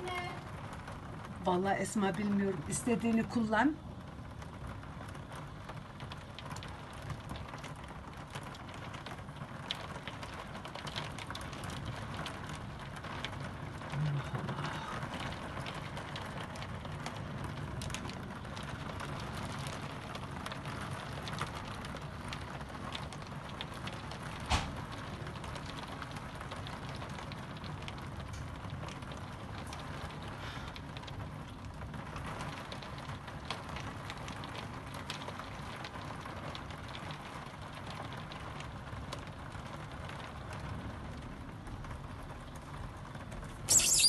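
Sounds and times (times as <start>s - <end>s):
heavy rain through window: 0.0s - 44.0s
raindrops ticking: 0.0s - 44.0s.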